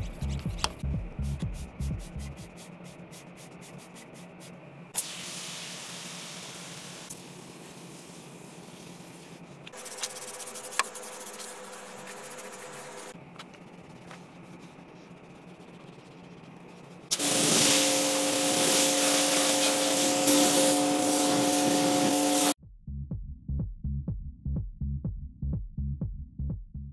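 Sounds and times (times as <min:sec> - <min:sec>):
spray hiss: 0:05.0 - 0:09.3, 0:17.1 - 0:22.6
rubbing: 0:08.6 - 0:17.1
cleaning machine motor whine: 0:17.2 - 0:22.6.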